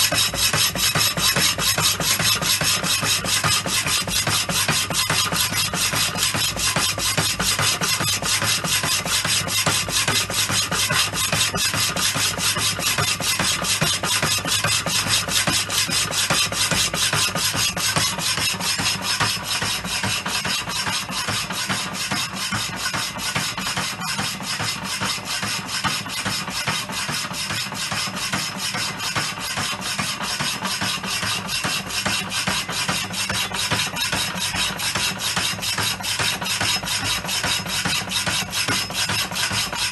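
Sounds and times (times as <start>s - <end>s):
hacksaw blade rasping through steel: 0.0s - 27.2s, 28.6s - 39.9s.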